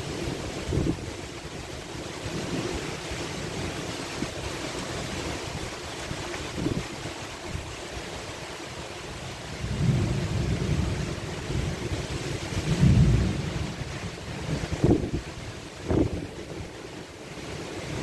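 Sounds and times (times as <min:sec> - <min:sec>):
heavy rain: 0:00.0 - 0:18.0
wind buffeting microphone: 0:00.3 - 0:02.8, 0:03.4 - 0:07.8, 0:09.6 - 0:16.8.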